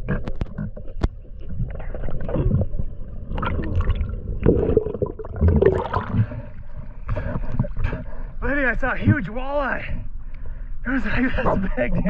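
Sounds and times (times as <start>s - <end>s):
underwater gurgling and bubbling: 0.0s - 8.3s.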